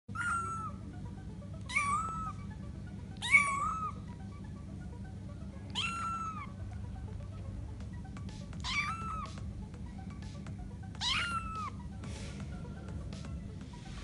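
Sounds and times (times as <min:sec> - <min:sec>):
kitten mewing: 0:00.1 - 0:00.8, 0:01.7 - 0:02.4, 0:03.2 - 0:04.0, 0:05.7 - 0:06.6, 0:08.6 - 0:09.4, 0:11.0 - 0:11.8.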